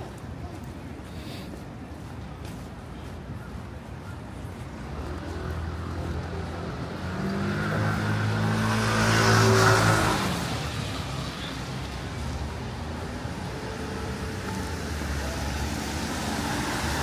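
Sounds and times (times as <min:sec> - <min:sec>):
vehicle engine passing: 0:04.9 - 0:17.0.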